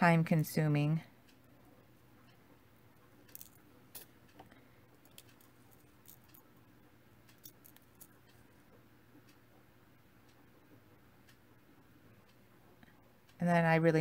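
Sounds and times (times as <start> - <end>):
seed beads clicking in pot: 3.3 - 3.6.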